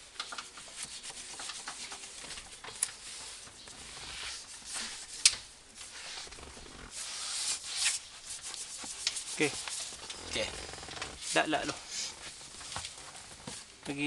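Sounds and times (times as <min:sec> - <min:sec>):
sponge scrubbing leather seat: 0:05.8 - 0:11.6.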